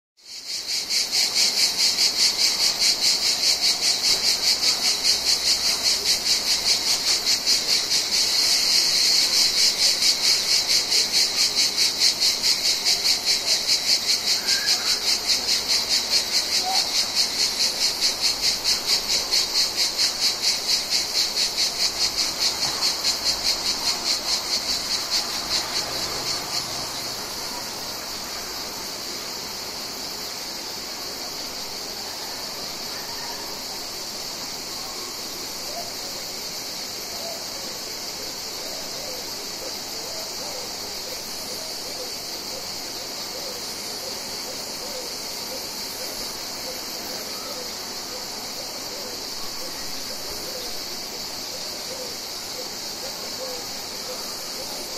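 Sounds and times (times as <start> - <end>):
cicadas singing: 0.2 - 54.9.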